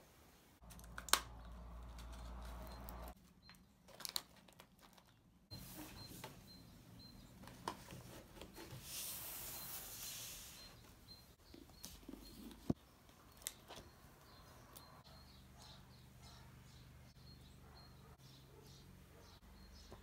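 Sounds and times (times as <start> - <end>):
faint high chirp: 1.4 - 3.8, 5.5 - 7.6, 8.5 - 20.0
sliding rustling scrape: 8.0 - 10.8.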